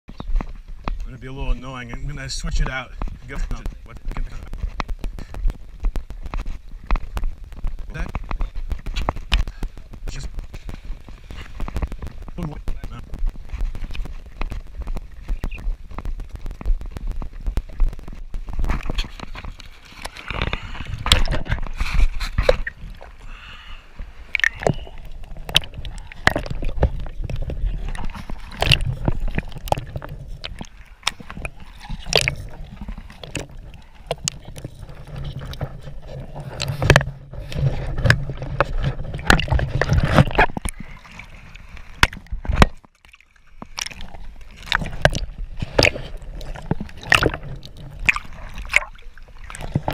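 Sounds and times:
water sloshing and splashing: 0:00.1 - 0:49.9.

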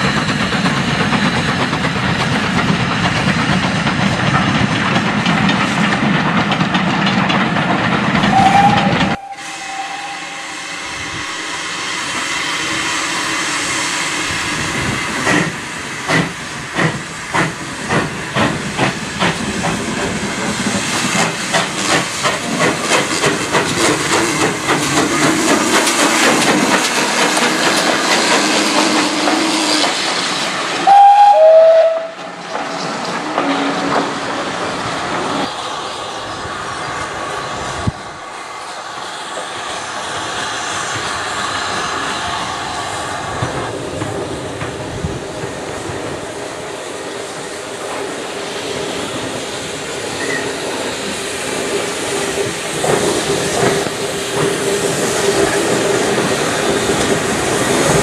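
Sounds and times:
steam hiss: 0:00.0 - 0:58.0
steam locomotive exhaust beats: 0:00.0 - 0:58.0
train running past: 0:00.0 - 0:58.0
train whistle: 0:08.2 - 0:13.8, 0:30.8 - 0:32.4.

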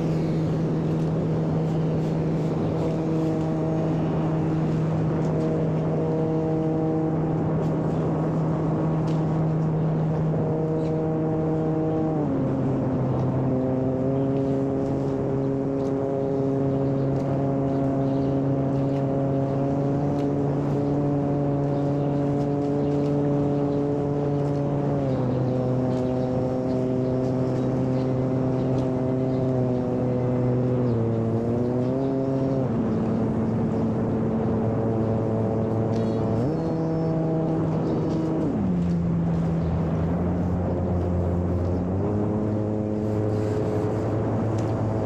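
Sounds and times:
model plane propeller drone: 0:00.0 - 0:45.0.

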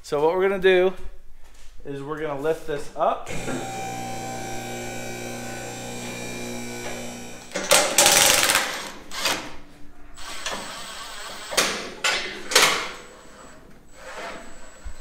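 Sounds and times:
electric motor humming: 0:03.3 - 0:09.2
impact driver rattling: 0:07.5 - 0:09.6.

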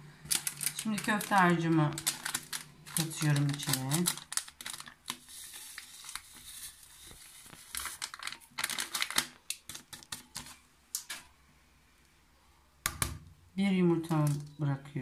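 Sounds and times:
packet crinkling: 0:00.2 - 0:11.3.

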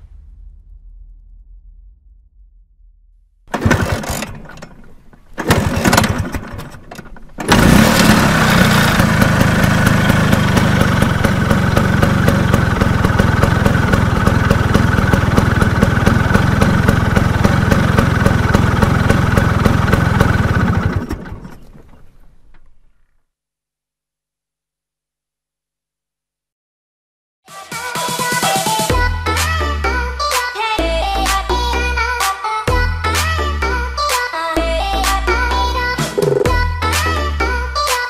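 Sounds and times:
scooter engine kick-started and idling: 0:03.5 - 0:23.0.

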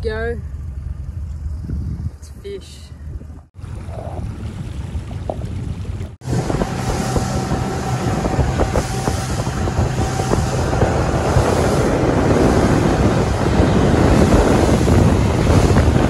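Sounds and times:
outboard boat engine: 0:00.0 - 0:16.0
wind buffeting microphone: 0:01.4 - 0:16.0
rushing water: 0:03.6 - 0:16.0.

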